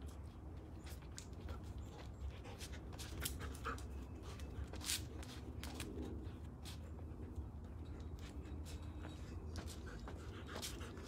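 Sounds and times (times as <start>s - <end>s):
dog panting: 9.6s - 11.0s.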